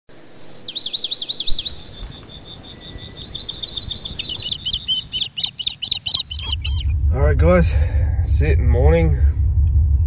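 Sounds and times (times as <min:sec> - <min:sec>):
bird chirping: 0:00.1 - 0:07.0.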